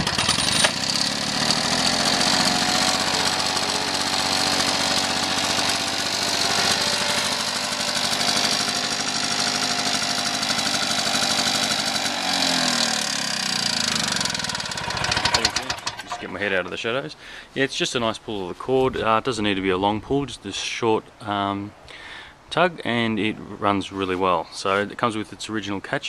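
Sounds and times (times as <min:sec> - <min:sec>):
pull-start cord: 0:00.0 - 0:16.3
lawnmower engine running: 0:00.0 - 0:16.4.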